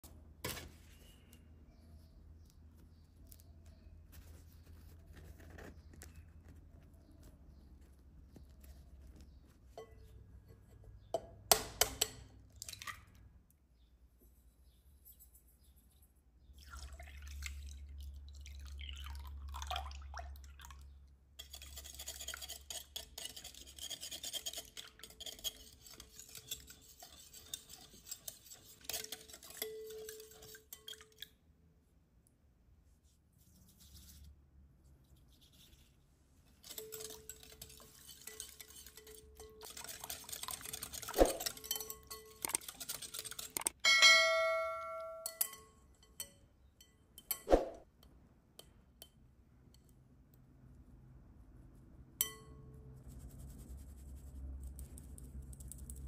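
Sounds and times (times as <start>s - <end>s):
pouring: 16.6s - 20.8s
whisk beating batter in glass bowl: 21.4s - 31.3s, 36.5s - 43.8s.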